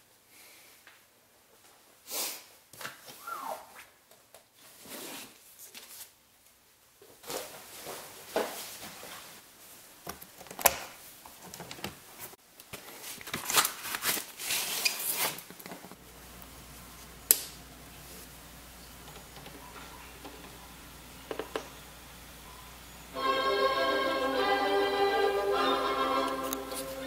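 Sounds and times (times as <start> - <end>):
rustling and scraping: 7.2 - 9.7, 11.3 - 16.0.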